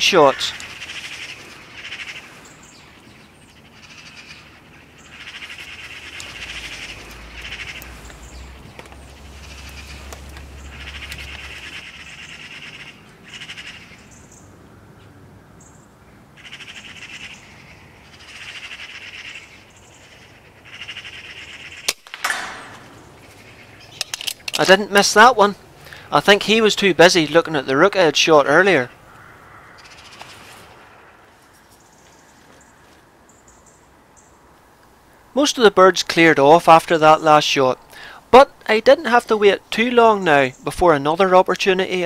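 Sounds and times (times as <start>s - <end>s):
magpies chattering: 0.0s - 14.6s, 15.6s - 34.4s, 35.4s - 42.0s
air rifle shot: 21.9s - 23.0s.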